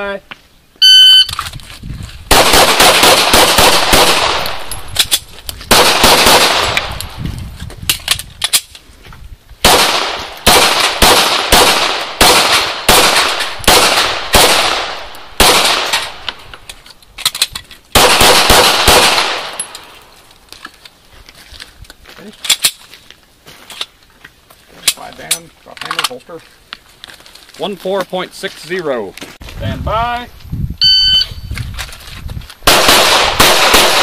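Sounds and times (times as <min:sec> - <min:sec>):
pistol shots with echo: 0:02.3 - 0:04.8, 0:05.7 - 0:06.9, 0:09.6 - 0:16.4, 0:18.0 - 0:19.7, 0:32.7 - 0:34.0.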